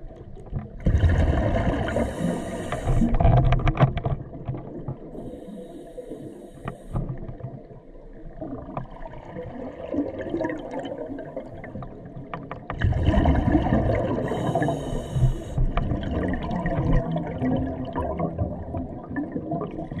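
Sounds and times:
regulator inhalation hiss: 1.8 - 3.2, 5.2 - 7.0, 14.2 - 15.6.

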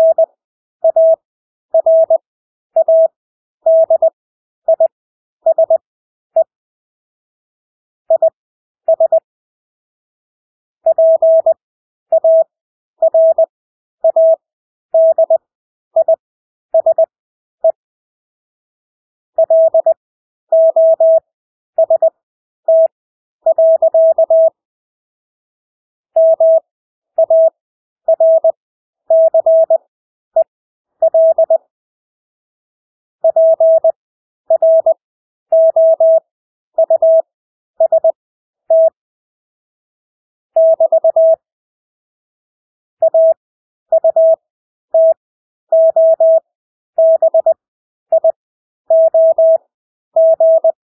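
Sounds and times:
morse code beeps: 0.0 - 1.2, 1.8 - 2.2, 2.8 - 4.9, 5.5 - 5.8, 8.1 - 9.2, 10.9 - 11.6, 12.2 - 14.4, 15.0 - 15.4, 16.8 - 17.8, 19.4 - 20.0, 20.6 - 21.2, 21.8 - 22.1, 22.7 - 24.6, 26.2 - 26.6, 27.2 - 29.8, 30.4 - 31.6, 33.2 - 36.2, 36.8 - 37.2, 37.8 - 39.0, 40.6 - 41.4, 43.0 - 46.4, 47.0 - 49.6, 50.2 - 50.8.

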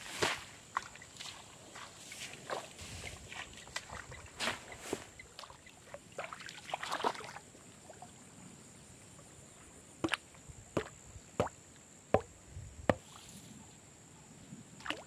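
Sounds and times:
water splashing from wading: 3.4 - 8.1, 14.8 - 15.0.

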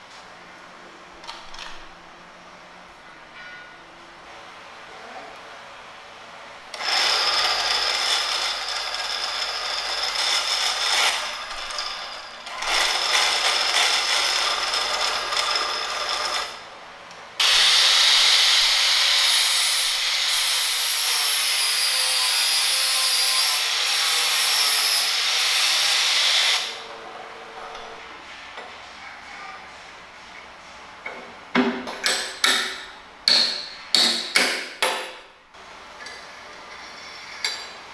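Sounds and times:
power tool cutting wood: 6.7 - 16.6, 17.4 - 26.8.

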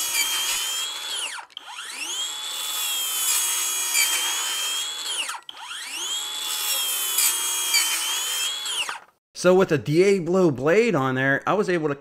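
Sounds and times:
circular saw cutting wood: 0.0 - 9.2.

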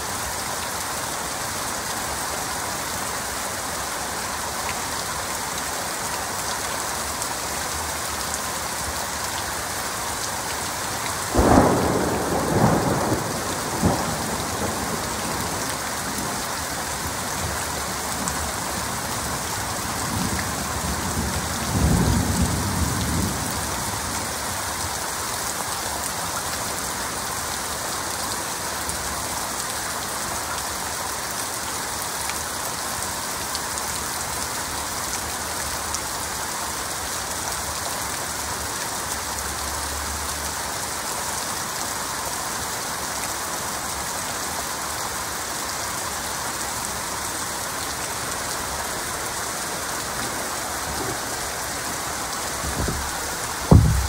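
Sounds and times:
heavy rain: 0.0 - 54.0
thunder: 11.4 - 15.6, 52.6 - 54.0.

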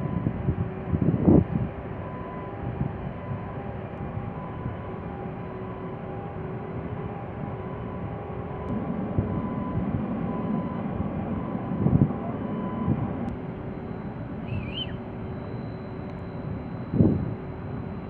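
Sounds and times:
wind gusts on microphone: 0.0 - 4.8, 7.4 - 13.3
faint machinery hum: 11.3 - 18.0
short warbling chirp: 13.8 - 15.9.

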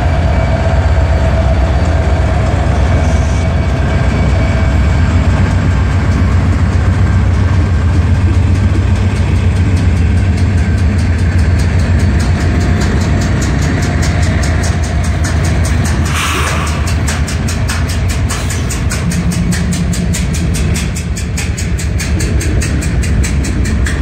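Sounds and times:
locomotive engine rumble: 0.0 - 24.0
wheels rolling on rails: 0.0 - 24.0.

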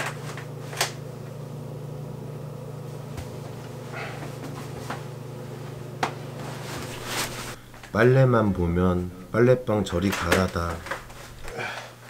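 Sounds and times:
low mechanical hum: 0.0 - 12.0
laundry rustling: 2.8 - 7.7, 10.1 - 12.0.

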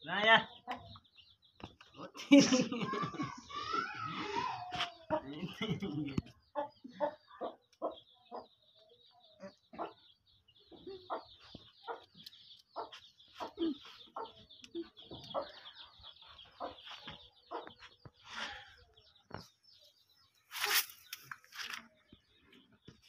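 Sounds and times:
small birds chirping: 0.0 - 23.0
chickens clucking: 3.5 - 20.3.

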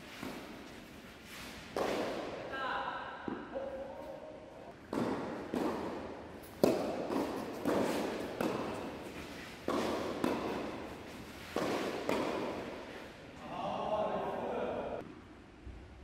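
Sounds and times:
tennis ball bouncing on court: 1.7 - 2.4, 4.8 - 12.8
tennis ball hit by rackets: 1.7 - 2.4, 4.8 - 12.9.

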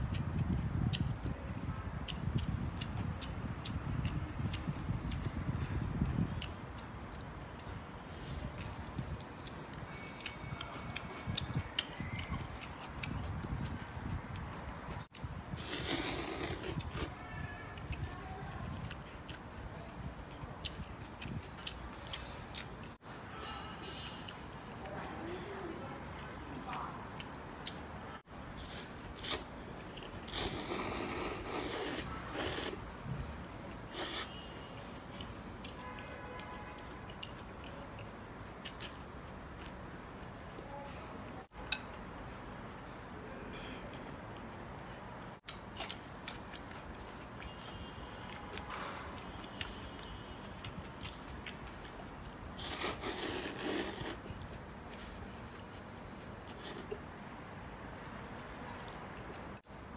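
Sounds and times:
person slurping noodles: 15.5 - 17.1, 30.3 - 32.8, 33.9 - 34.4, 52.6 - 54.3.

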